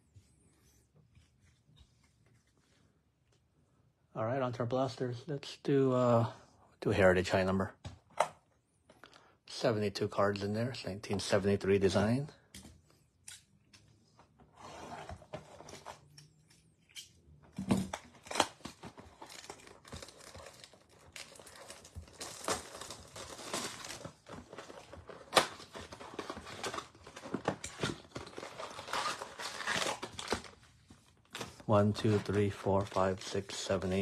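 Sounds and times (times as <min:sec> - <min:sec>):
plastic wrap crinkling and tearing: 0:17.9 - 0:33.8.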